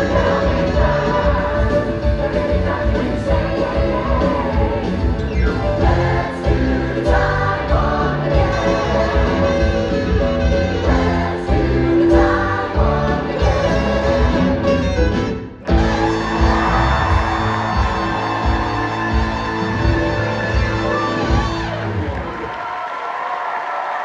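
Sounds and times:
cast singing together: 0.0s - 5.1s, 5.8s - 9.9s, 10.8s - 14.6s
live band playing: 0.0s - 22.3s.

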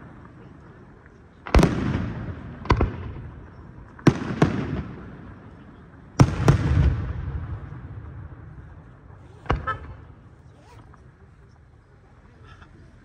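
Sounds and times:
fireworks bursting: 1.0s - 11.2s.

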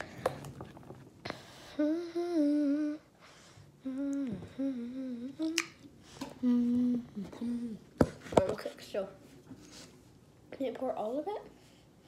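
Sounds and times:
girl humming: 1.6s - 3.2s, 3.8s - 5.8s, 6.4s - 7.9s.

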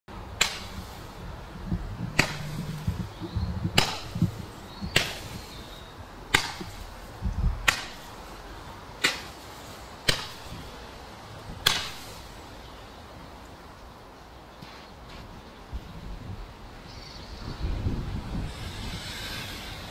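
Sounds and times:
fireworks bangs: 0.5s - 5.7s
low rumble: 1.2s - 5.4s.

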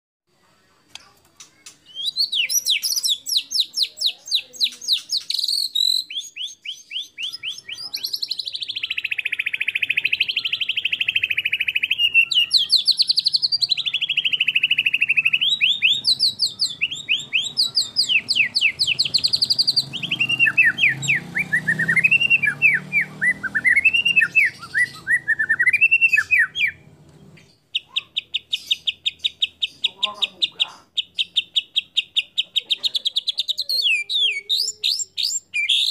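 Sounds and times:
bird singing varied song: 0.4s - 35.9s.

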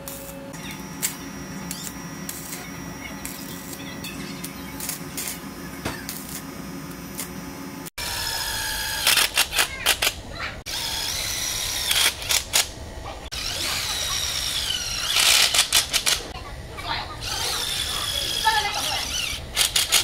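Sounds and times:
arc welding crackle: 0.0s - 16.4s, 17.2s - 20.0s
cordless drill whining: 13.4s - 15.7s, 17.2s - 20.0s.

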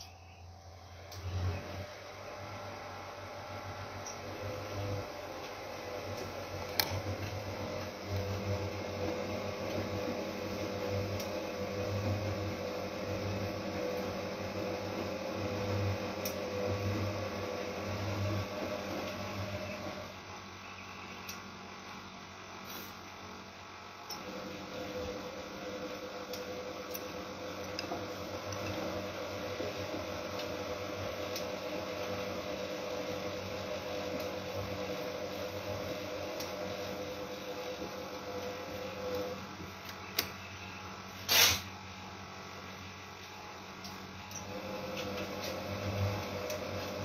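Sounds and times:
washing machine motor humming: 0.0s - 47.0s
click: 21.2s - 21.4s, 39.8s - 40.3s.

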